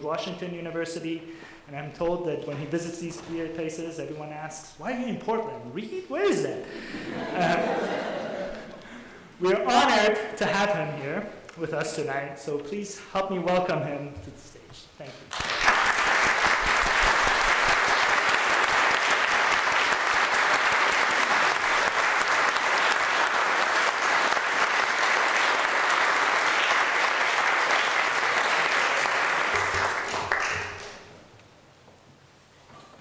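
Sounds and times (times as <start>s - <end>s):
audience applauding: 15.3s - 31.2s.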